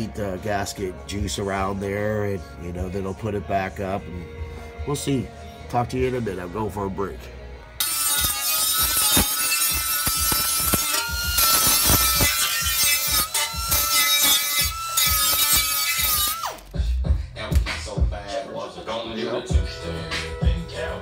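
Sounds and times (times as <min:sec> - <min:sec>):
pneumatic die grinder whining: 0:07.8 - 0:16.7
music with steady beat: 0:16.0 - 0:21.0.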